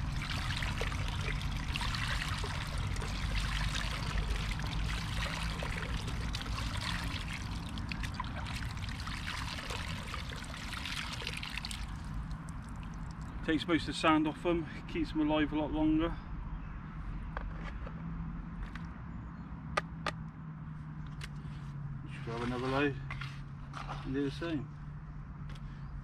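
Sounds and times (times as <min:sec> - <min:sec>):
water trickling through sieve: 0:00.0 - 0:13.5.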